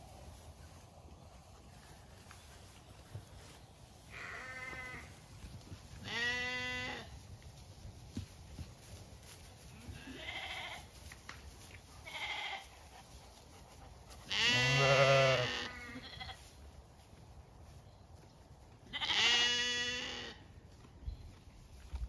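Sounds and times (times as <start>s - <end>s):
sheep bleating: 4.1s - 5.2s, 6.0s - 7.1s, 9.9s - 10.9s, 12.0s - 12.7s, 14.3s - 16.4s, 18.9s - 20.4s.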